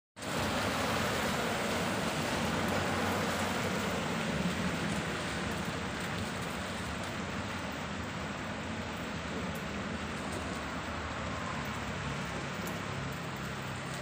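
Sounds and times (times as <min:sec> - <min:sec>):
tyres swishing through water: 0:00.2 - 0:08.3
steady rain: 0:00.2 - 0:14.0.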